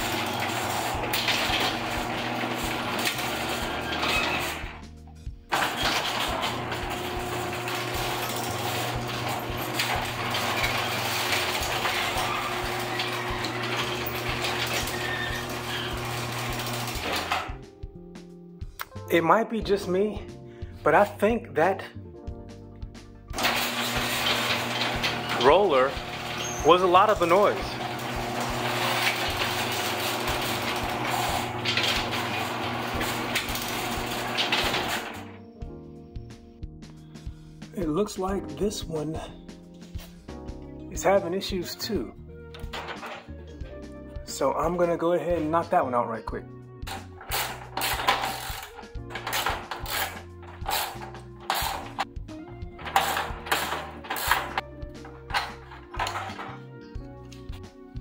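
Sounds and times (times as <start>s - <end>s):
garage door opener motor humming: 0.0s - 4.9s, 5.5s - 17.6s, 23.3s - 35.5s, 42.5s - 43.8s, 46.8s - 56.8s.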